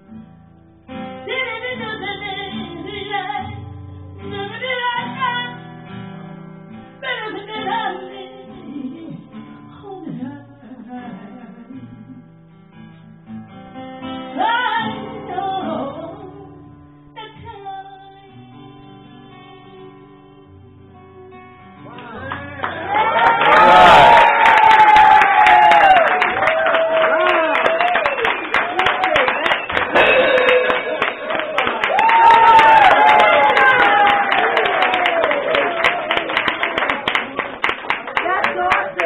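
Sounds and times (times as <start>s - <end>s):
strummed acoustic guitar: 0.0s - 22.9s, 29.8s - 31.7s
woman singing blues: 0.9s - 6.0s, 7.0s - 12.4s, 14.2s - 22.9s.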